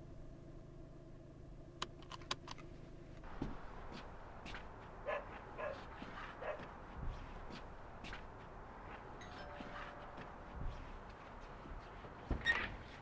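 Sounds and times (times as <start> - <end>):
low hum of car cabin: 0.0 - 13.0
light footsteps: 3.2 - 13.0
dog barking: 5.0 - 6.7.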